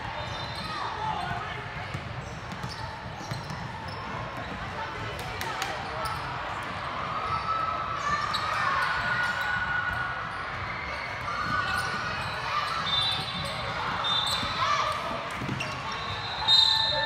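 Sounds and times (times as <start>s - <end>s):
shoe squeaks: 0.2s - 1.3s, 2.2s - 4.6s, 8.2s - 9.6s, 10.3s - 17.0s
basketball bouncing on court: 1.2s - 5.3s, 15.3s - 15.9s.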